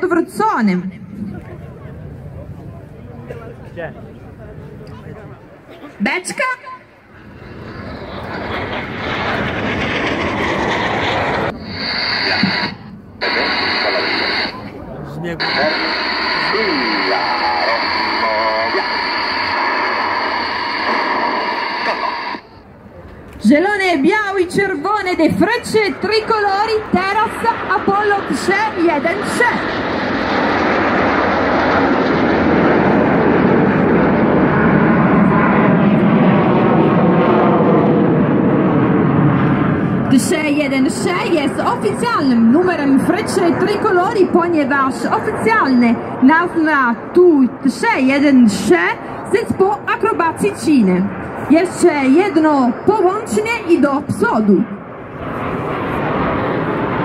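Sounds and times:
jet flying past: 0.0s - 57.0s
high steady whine: 6.6s - 30.3s.

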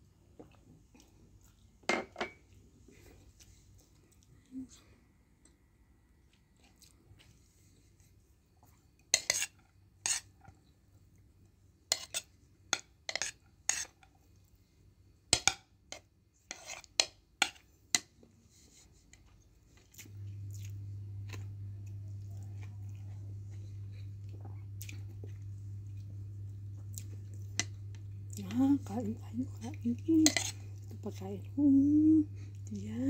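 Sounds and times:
steady low hum: 18.4s - 33.0s.

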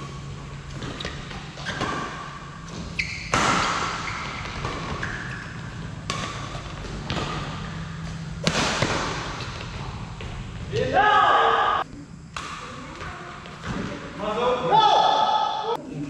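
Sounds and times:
shoes squeaking on court: 0.0s - 8.4s, 9.3s - 10.8s
rackets striking shuttlecock: 0.8s - 9.9s.

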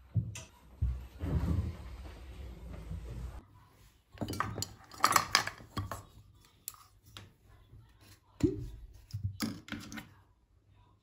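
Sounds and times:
glass jars clinking: 4.2s - 6.0s.

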